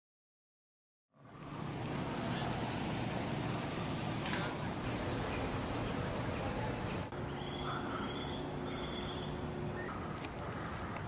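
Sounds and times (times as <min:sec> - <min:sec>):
steady hiss and rumble: 0:01.2 - 0:07.5
bird chirps: 0:05.0 - 0:11.0.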